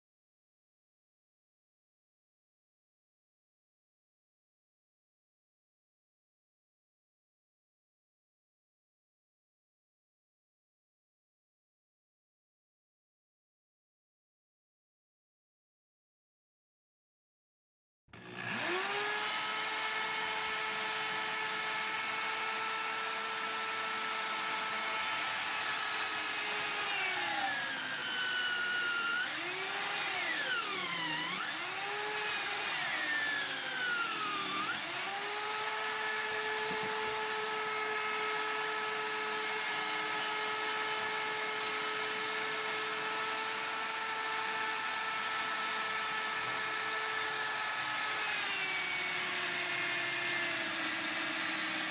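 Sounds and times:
electric drill whining: 18.2s - 51.9s.

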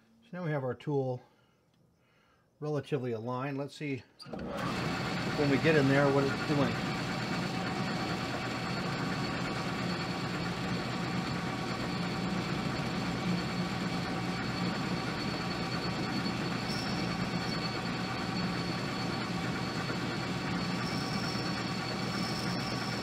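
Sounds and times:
metal lathe humming: 4.3s - 23.0s
faint high whine: 11.4s - 23.0s.

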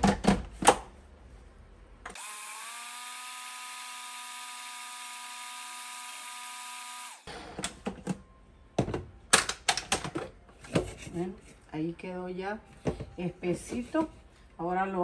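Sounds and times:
blender motor running: 2.2s - 7.4s.

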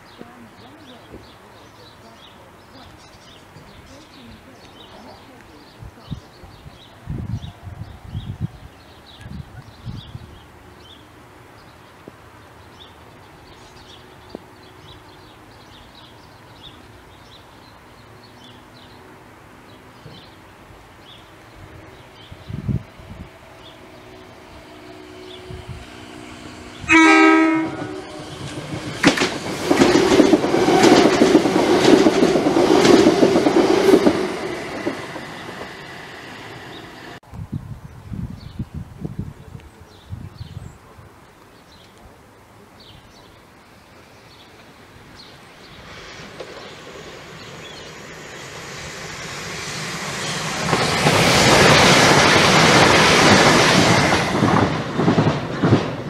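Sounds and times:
train passing at speed: 0.0s - 37.2s, 42.8s - 56.0s
wheels clattering over rail joints: 50.0s - 56.0s.

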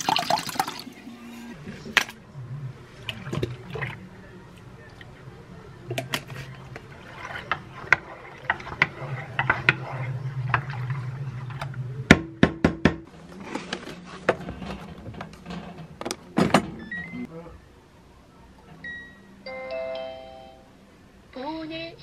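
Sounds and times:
spatula stirring milk in pot: 6.3s - 11.6s.

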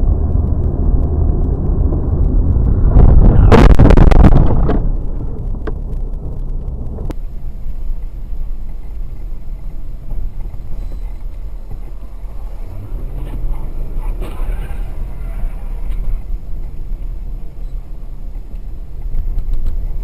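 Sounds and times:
car road and engine rumble: 0.0s - 20.0s
loud noise: 0.9s - 5.6s.

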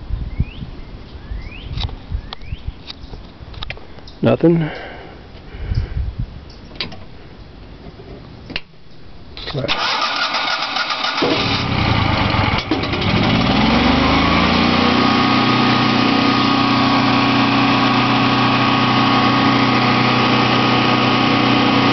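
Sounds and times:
generator engine cranking and running: 9.7s - 21.9s.

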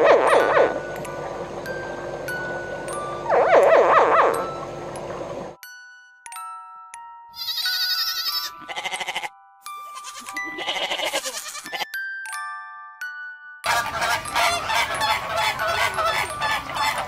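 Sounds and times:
soft chiming background music: 0.3s - 3.5s, 4.3s - 17.0s
goat bleating: 7.4s - 9.3s, 9.9s - 11.9s.

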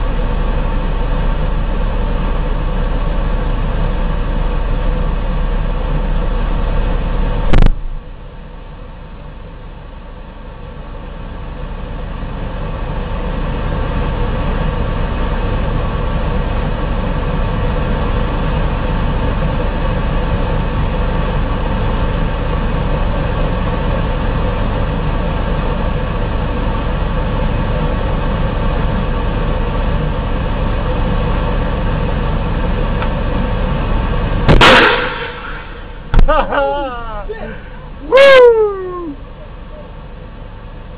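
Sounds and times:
vehicle engine humming: 0.0s - 40.9s
sharp knock: 7.5s - 7.9s, 34.5s - 36.4s
loud bang: 7.5s - 8.1s, 34.5s - 36.6s.

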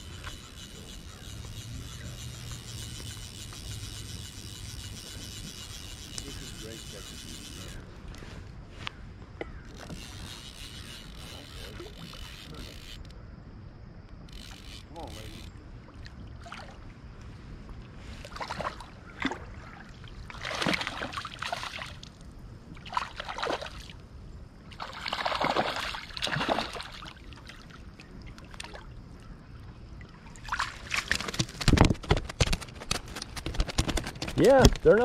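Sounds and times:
water splashing and sloshing: 14.5s - 34.6s.

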